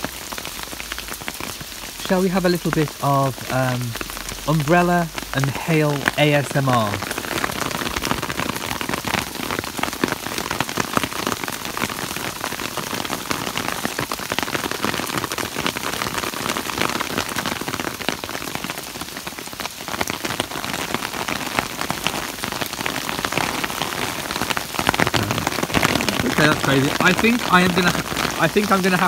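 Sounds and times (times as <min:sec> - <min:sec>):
rain and hail on umbrella: 0:00.0 - 0:29.0.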